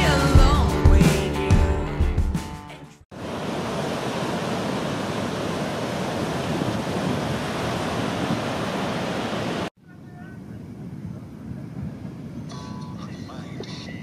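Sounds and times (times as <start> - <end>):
waves breaking on a beach: 3.1 - 9.7.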